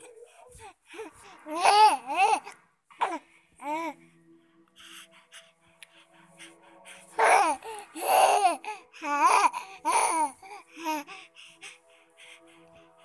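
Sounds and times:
baby babbling and laughing: 0:00.0 - 0:04.0, 0:07.2 - 0:11.0.

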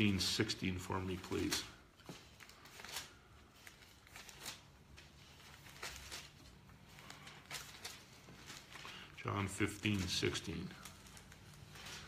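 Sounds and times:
paper pages rustling: 0:00.0 - 0:12.0.

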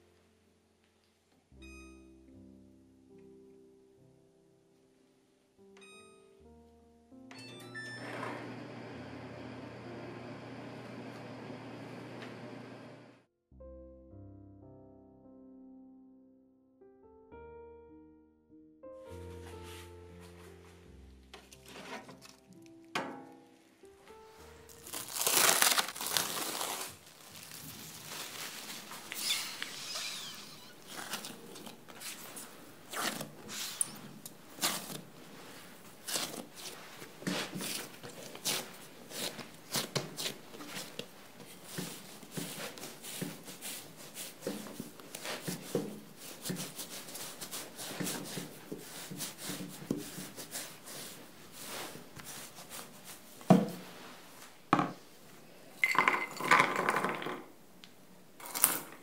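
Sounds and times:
cling film crinkling: 0:21.4 - 0:22.9, 0:24.4 - 0:43.0
hands patting dough: 0:34.3 - 0:54.0.

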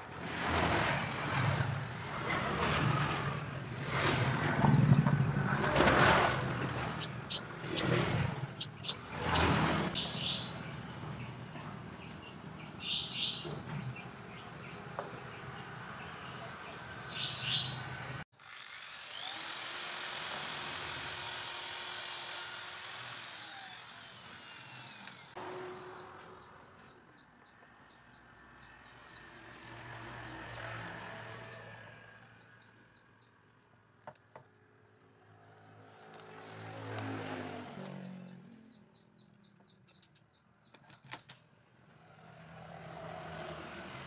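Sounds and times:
electric drill whining: 0:18.4 - 0:25.4.

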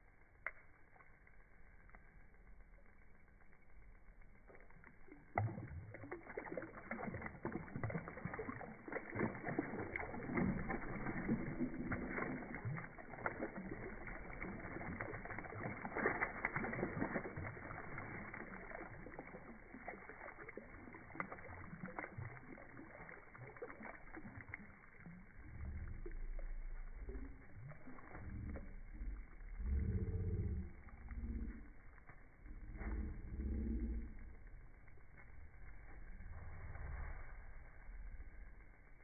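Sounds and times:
fish splashing at water surface: 0:04.4 - 0:34.4.

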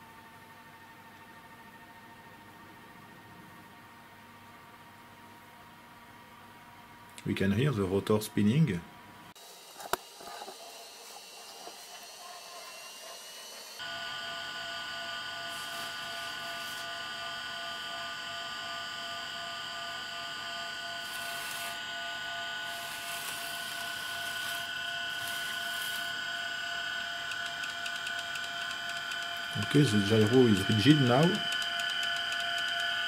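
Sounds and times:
gyro rotor motor whine: 0:09.4 - 0:33.0.

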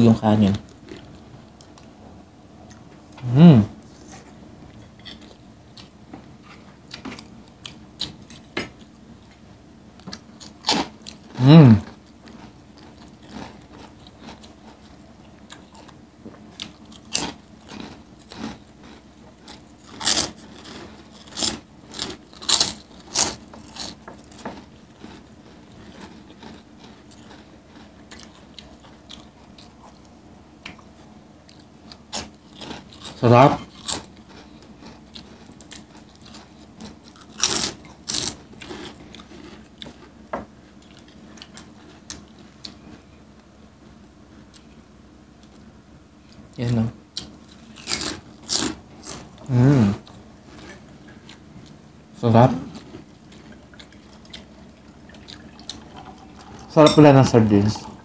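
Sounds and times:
person humming: 0:03.2 - 0:03.7, 0:49.5 - 0:50.0
crunching chips: 0:16.6 - 0:29.1, 0:32.1 - 0:39.7, 0:46.6 - 0:50.8
chewing and mouth clicks: 0:52.7 - 0:56.6.

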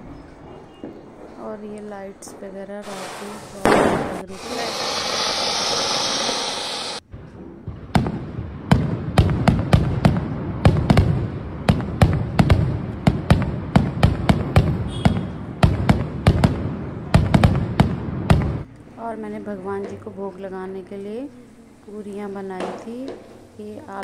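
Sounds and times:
fountain firework hissing: 0:02.8 - 0:07.0
firework cracks and bangs: 0:02.8 - 0:18.7.

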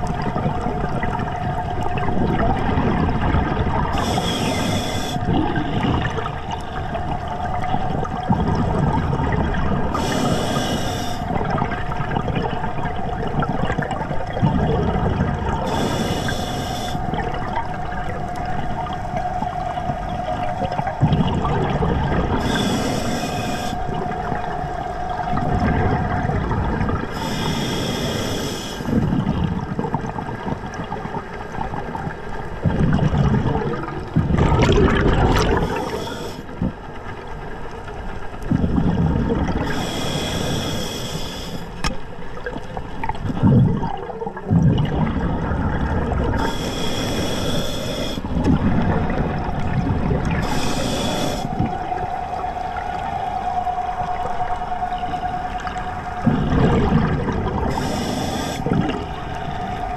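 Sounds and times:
steady hum: 0:00.0 - 0:13.4, 0:15.1 - 0:29.4, 0:33.5 - 0:42.4, 0:45.1 - 0:59.9
bubbles gurgling underwater: 0:00.0 - 0:40.9, 0:41.8 - 0:59.9
regulator hissing on inhalation: 0:04.0 - 0:05.4, 0:10.0 - 0:11.3, 0:15.7 - 0:17.0, 0:22.4 - 0:23.9, 0:27.1 - 0:29.0, 0:35.6 - 0:36.5, 0:39.6 - 0:41.8, 0:46.4 - 0:48.3, 0:50.4 - 0:51.7, 0:57.7 - 0:59.5.

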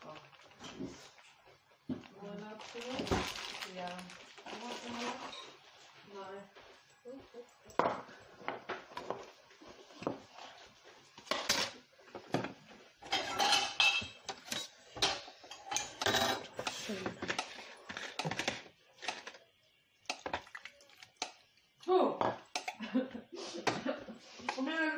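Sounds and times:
metal bowl clattering and scraping: 0:08.9 - 0:19.4.

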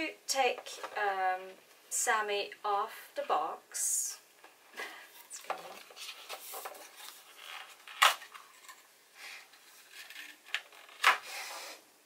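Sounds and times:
cardboard rustling and tapping: 0:05.3 - 0:08.8.

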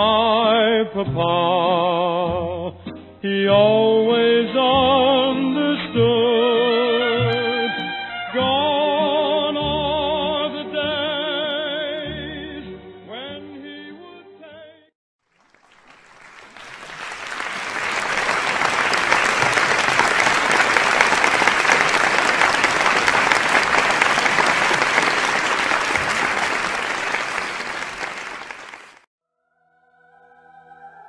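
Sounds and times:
crowd applauding: 0:15.2 - 0:29.1.

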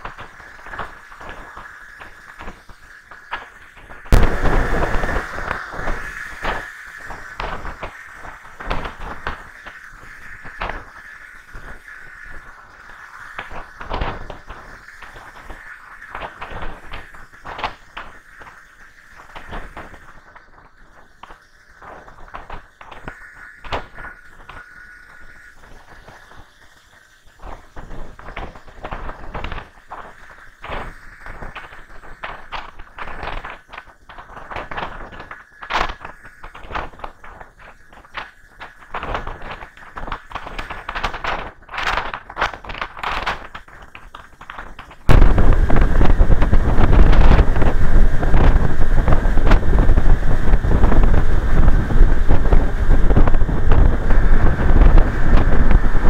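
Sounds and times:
crackles and knocks on microphone: 0:03.2 - 0:06.6, 0:28.2 - 0:56.0
wind rushing over microphone: 0:04.0 - 0:10.8, 0:45.0 - 0:56.0.

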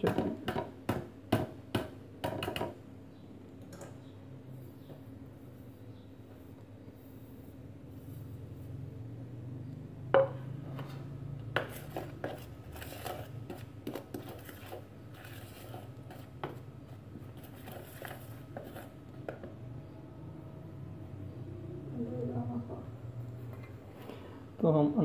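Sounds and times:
fork scraping a plastic bowl: 0:11.6 - 0:16.6, 0:17.2 - 0:19.0.

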